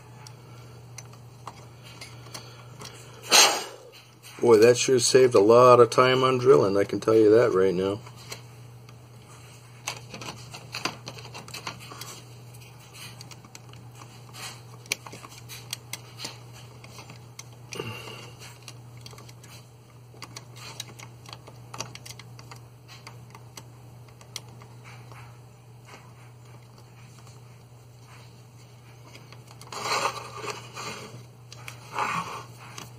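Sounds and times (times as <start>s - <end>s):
steady low hum: 0.0s - 32.9s
plastic parts handled on a mat: 9.3s - 23.6s
hobby knife scraping plastic: 29.5s - 32.9s.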